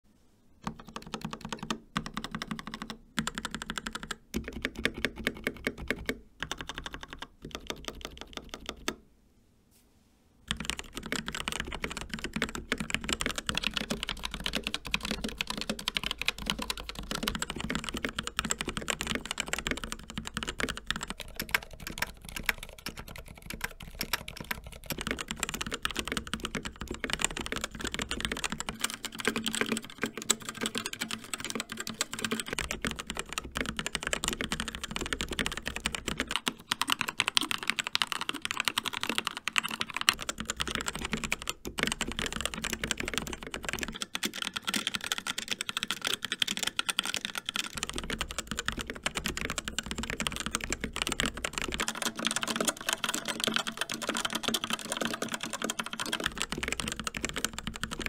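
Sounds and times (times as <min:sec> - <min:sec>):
mechanical keyboard typing: 0:00.6 - 0:09.0, 0:10.5 - 0:58.0.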